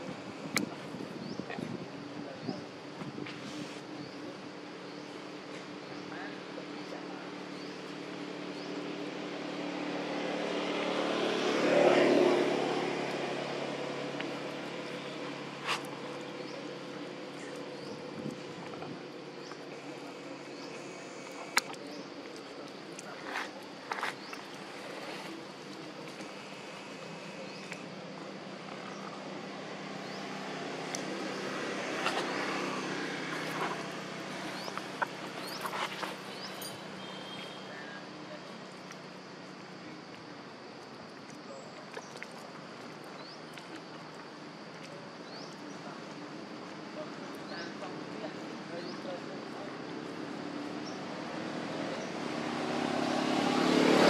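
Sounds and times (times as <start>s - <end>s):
vehicle engine passing by: 8.5s - 38.0s, 47.6s - 54.0s.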